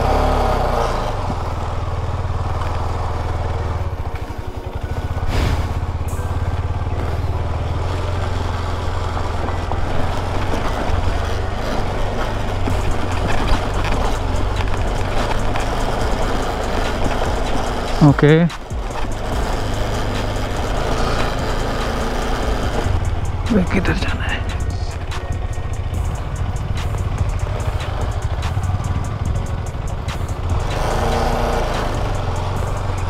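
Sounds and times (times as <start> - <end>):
motorcycle engine under load: 0.0 - 33.0
knocks and rattles: 8.3 - 33.0.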